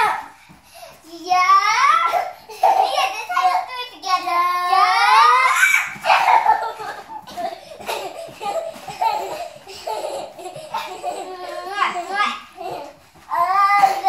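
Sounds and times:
girls laughing: 5.1s - 13.0s.

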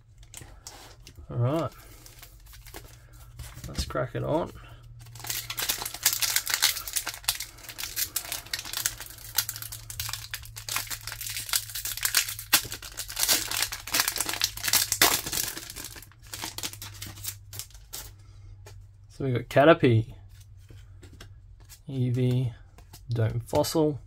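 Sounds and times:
foil wrapper crinkling and tearing: 0.2s - 4.1s, 5.0s - 18.1s.

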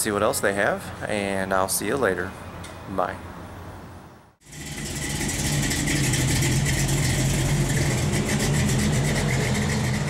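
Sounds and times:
car engine idling: 4.4s - 10.0s.

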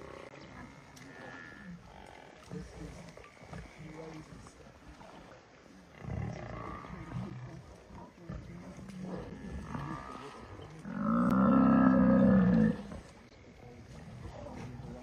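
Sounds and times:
lions growling: 4.9s - 15.0s
buffalo bellowing: 10.8s - 12.9s.

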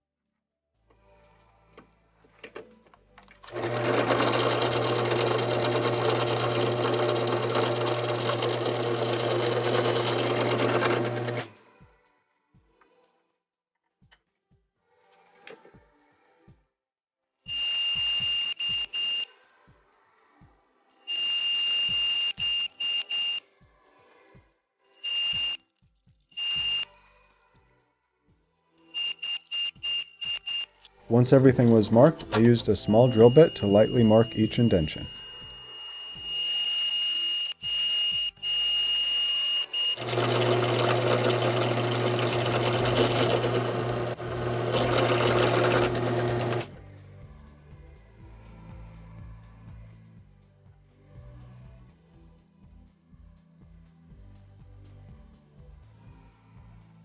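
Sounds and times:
drill bit squealing into metal: 32.4s - 46.6s.

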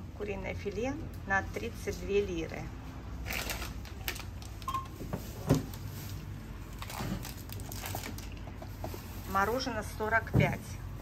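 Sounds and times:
groceries and packaging clicking: 2.4s - 10.8s.

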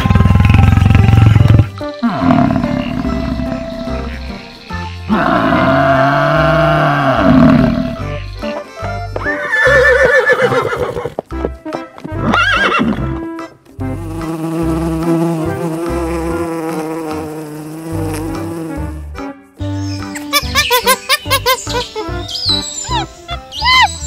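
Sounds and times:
horse neighing: 0.0s - 4.1s, 5.1s - 8.0s, 9.2s - 11.2s, 12.2s - 13.1s
water buffalo bellowing: 0.0s - 4.4s, 5.1s - 8.1s
bees buzzing: 0.0s - 8.8s, 13.8s - 19.0s.

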